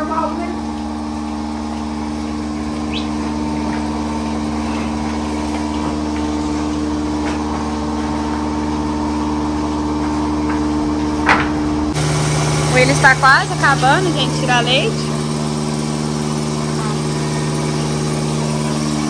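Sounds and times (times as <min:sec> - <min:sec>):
vacuum pump humming: 0:00.0 - 0:19.0.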